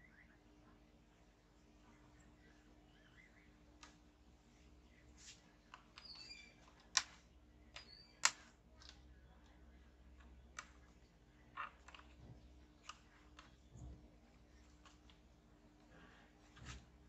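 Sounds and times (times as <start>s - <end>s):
cable handling faint clicks and taps: 5.2s - 17.0s.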